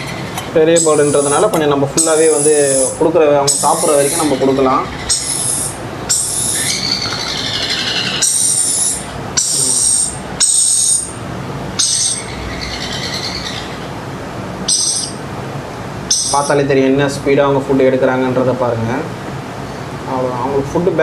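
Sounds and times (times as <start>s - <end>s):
bird chick begging calls: 0.0s - 11.2s, 11.8s - 14.0s, 14.7s - 15.2s, 16.1s - 16.6s.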